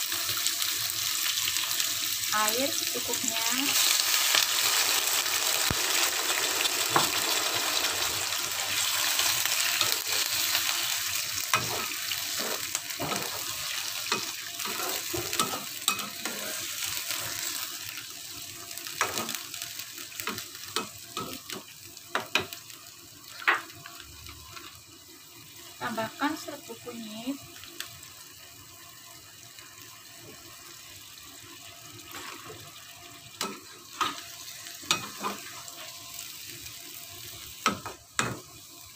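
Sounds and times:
water and oil sizzling in a wok: 0.0s - 38.9s
metal spatula scraping a pan: 11.5s - 17.5s, 34.8s - 35.9s.

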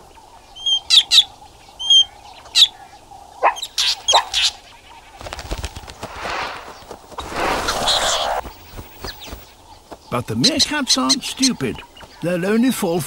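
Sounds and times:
bird wingbeats: 5.1s - 10.0s
bird giving harsh alarm calls: 6.2s - 8.5s.

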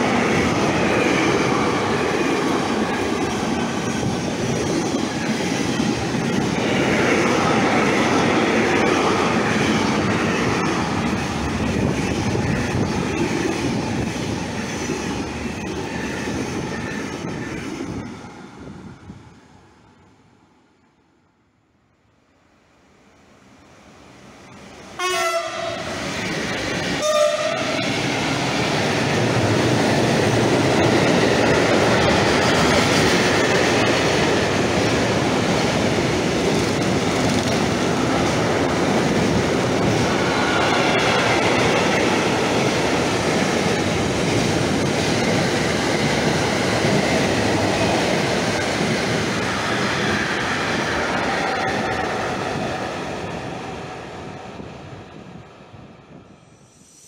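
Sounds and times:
train wheels on rails: 0.0s - 19.7s, 23.7s - 57.0s
locomotive horn blasts: 25.0s - 25.9s, 27.0s - 27.8s.

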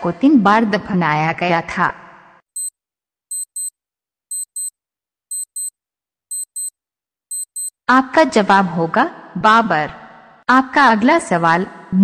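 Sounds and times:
clock ticks: 3.3s - 3.7s, 4.3s - 4.7s, 5.3s - 5.7s, 6.3s - 6.7s, 7.3s - 7.7s.

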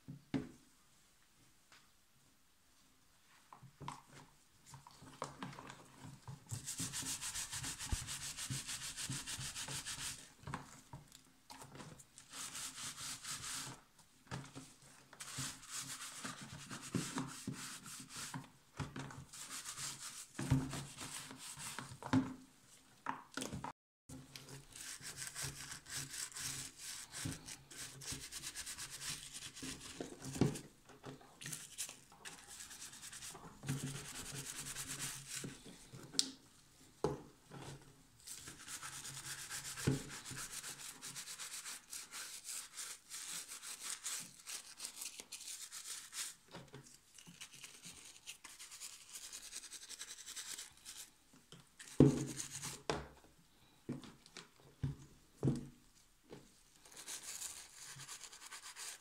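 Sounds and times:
scrub brush scrubbing wood: 6.6s - 10.2s.

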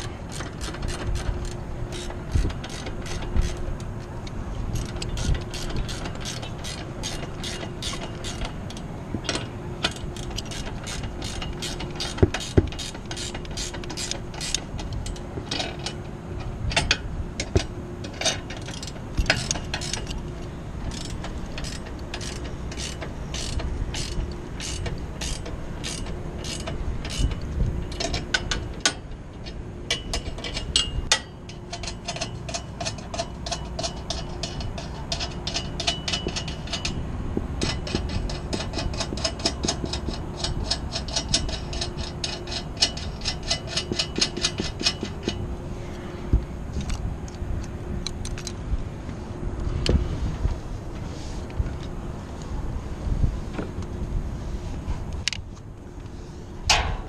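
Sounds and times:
ratchet wrench clicking: 0.0s - 3.7s, 4.7s - 16.0s, 16.7s - 37.0s, 37.6s - 45.4s.

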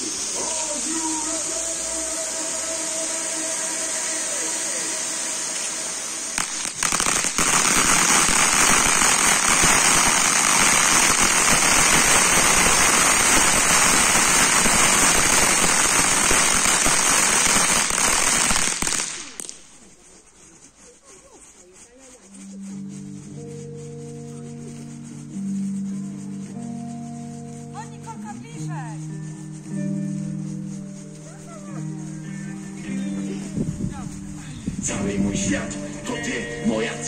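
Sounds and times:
dense crackling fountains: 0.0s - 20.0s
spark fountains hissing: 0.0s - 24.2s.

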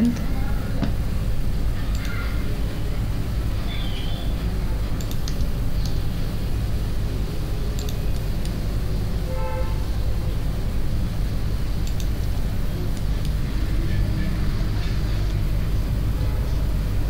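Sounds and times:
light clicks: 5.0s - 6.0s, 7.8s - 8.6s, 11.8s - 12.2s.

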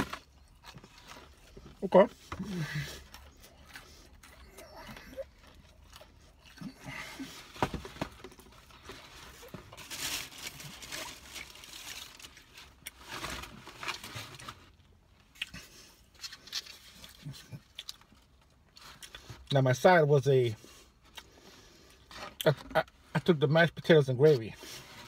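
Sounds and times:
man chewing food: 0.0s - 9.6s, 15.2s - 19.5s, 20.8s - 22.5s.

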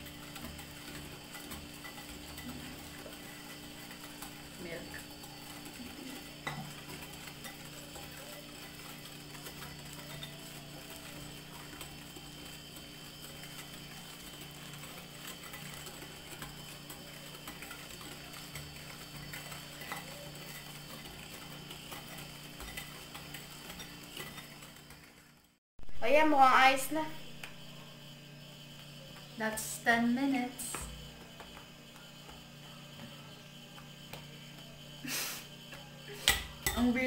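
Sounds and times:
whisk scraping a bowl: 0.0s - 25.6s.

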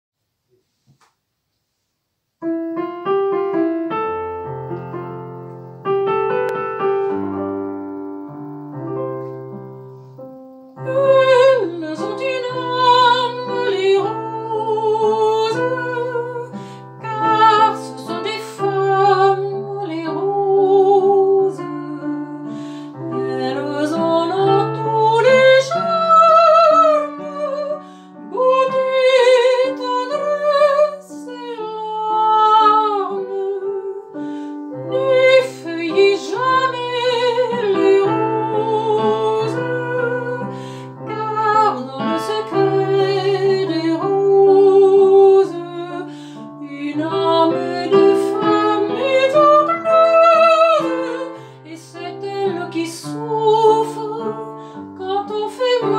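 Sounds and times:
piano playing: 2.4s - 55.9s
woman singing with vibrato: 10.8s - 55.9s.

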